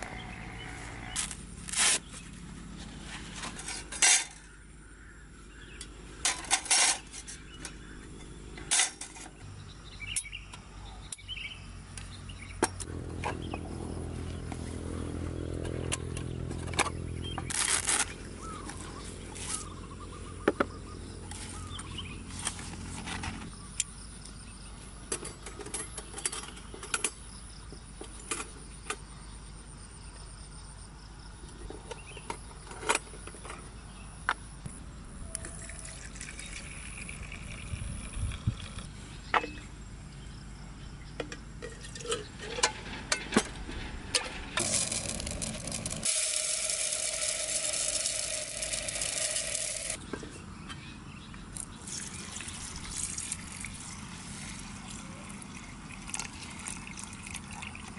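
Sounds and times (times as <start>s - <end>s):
metal cooking gear clinking: 44.2s - 50.0s
rice poured into metal tin: 44.6s - 50.0s.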